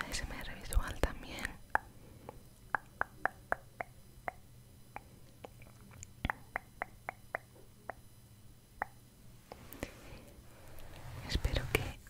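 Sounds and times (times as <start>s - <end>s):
wet lip pops and clicks: 0.8s - 8.0s, 8.8s - 9.0s.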